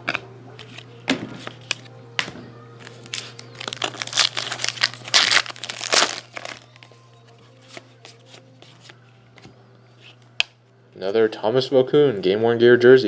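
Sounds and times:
foil pack crinkling: 0:03.0 - 0:06.9.

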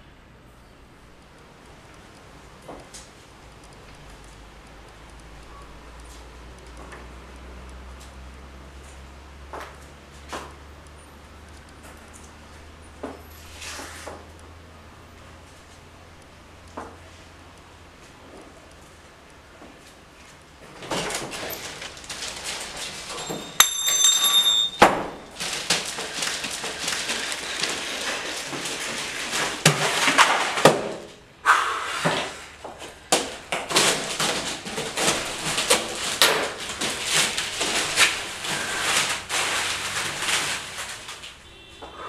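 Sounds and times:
newspaper rustling and crumpling: 0:20.8 - 0:23.4, 0:25.1 - 0:30.9, 0:32.8 - 0:41.4
short high ringing: 0:23.2 - 0:25.2.

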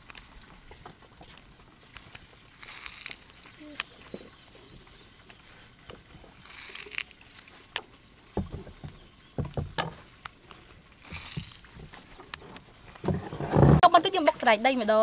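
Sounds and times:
juice splashing into bowl: 0:02.0 - 0:04.1, 0:06.3 - 0:08.0, 0:10.3 - 0:13.0.

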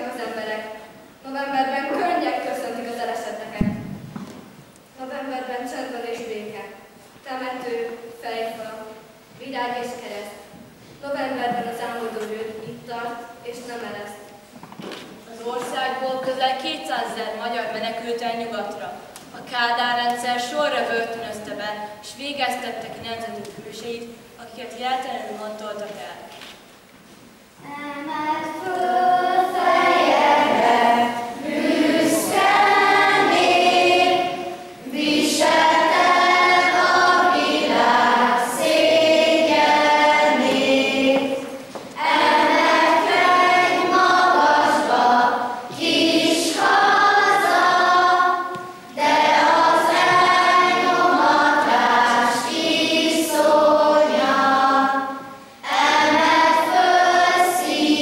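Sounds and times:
children's choir singing: 0:27.6 - 0:58.0.

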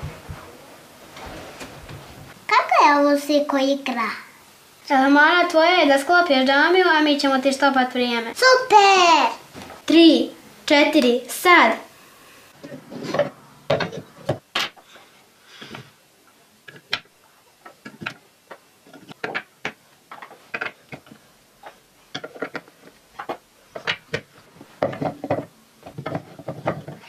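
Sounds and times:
wooden toy blocks clacking: 0:18.9 - 0:21.2, 0:22.1 - 0:27.0.

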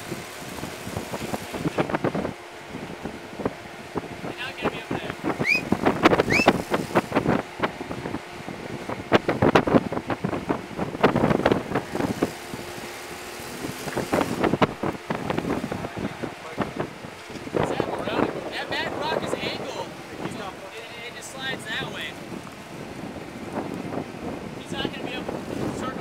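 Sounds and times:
engine running at low revs: 0:00.0 - 0:26.0
short rising squeaks: 0:05.4 - 0:06.7.

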